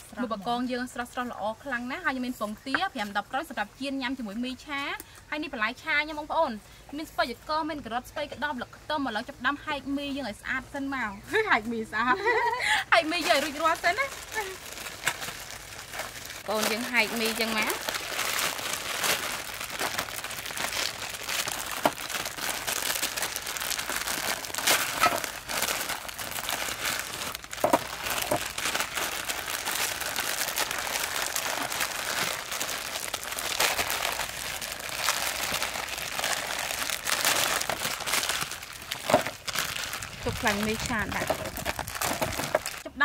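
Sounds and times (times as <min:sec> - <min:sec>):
plastic packets crinkling: 0:12.3 - 0:42.9.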